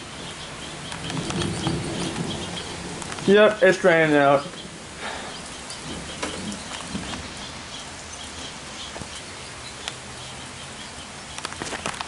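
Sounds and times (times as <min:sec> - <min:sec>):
rain falling on trees: 0:00.0 - 0:12.0
sharp clicks: 0:00.9 - 0:02.3, 0:11.3 - 0:12.0.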